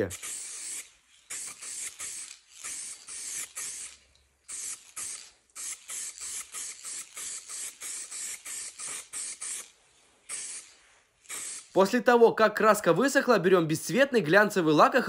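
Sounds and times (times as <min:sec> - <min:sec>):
aerosol spray can hissing: 0:00.0 - 0:12.0.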